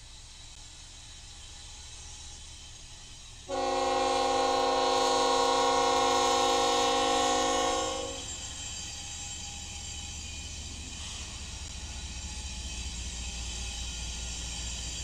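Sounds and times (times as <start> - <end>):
freight train rumbling: 0.0 - 15.0
locomotive air horn blast: 3.5 - 8.3.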